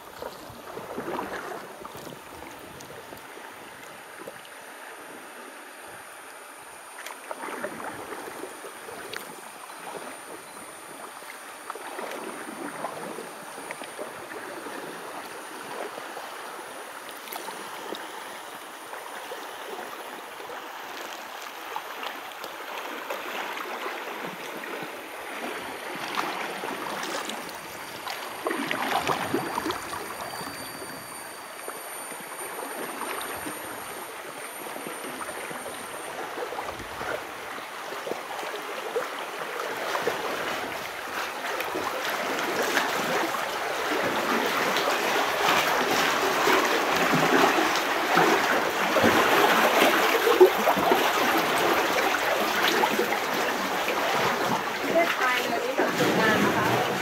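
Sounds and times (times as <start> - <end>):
river water rushing: 0.0 - 57.0.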